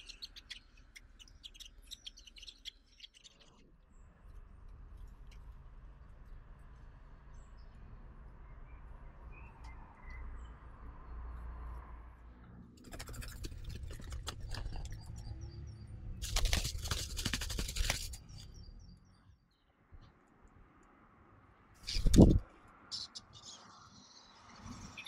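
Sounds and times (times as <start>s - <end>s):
birds flapping wings in nest: 12.8s - 14.9s, 16.2s - 18.4s, 21.9s - 22.4s.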